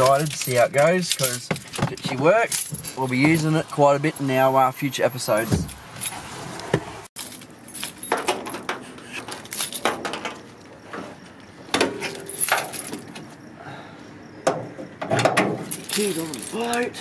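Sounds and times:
keys jingling: 0.0s - 4.3s, 7.2s - 10.6s, 12.0s - 13.4s, 15.6s - 17.0s
car bonnet clicks and knocks: 11.7s - 13.2s, 14.4s - 15.7s.

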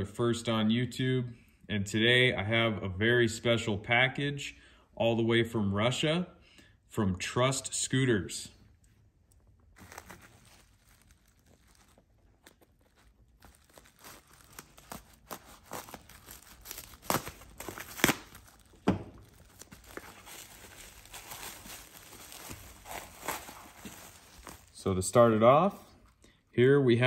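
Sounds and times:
sharp rips and snaps: 9.3s - 20.3s
plastic wrap crinkling: 9.3s - 26.2s.

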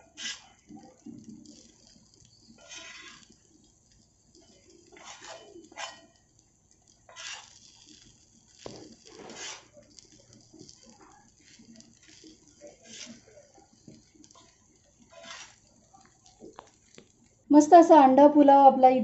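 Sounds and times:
spatula scraping on a griddle: 0.0s - 6.3s, 7.1s - 16.8s.

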